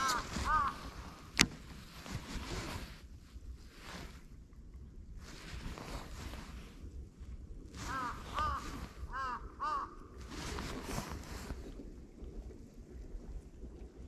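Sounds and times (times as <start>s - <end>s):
crow cawing: 0.0s - 1.1s, 7.9s - 10.0s
wind gusts: 0.0s - 14.0s.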